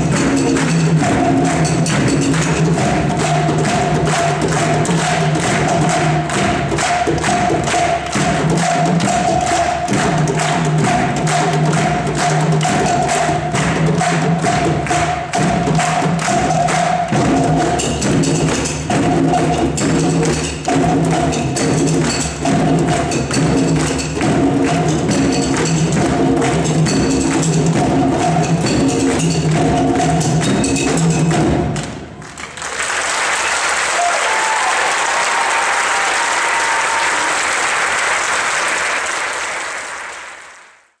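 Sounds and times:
children's hand drum ensemble: 0.0 - 40.9
audience applauding: 31.8 - 41.0.

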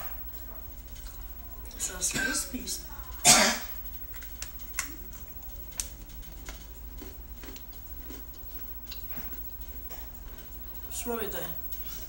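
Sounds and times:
faint chewing crunches: 3.8 - 10.9.

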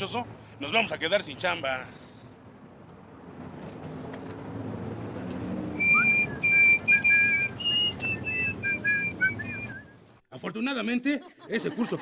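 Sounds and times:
person whistling a tune: 5.8 - 10.0.

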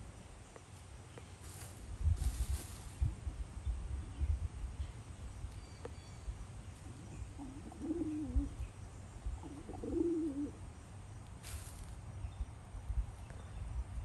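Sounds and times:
chicken murmuring calls: 6.8 - 8.6, 9.4 - 10.6.

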